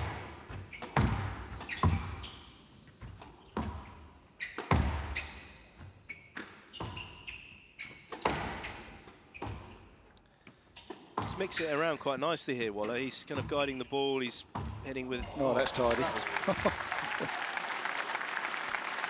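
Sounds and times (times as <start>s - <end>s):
shoes squeaking on floor: 0.5s - 11.9s, 12.8s - 15.4s.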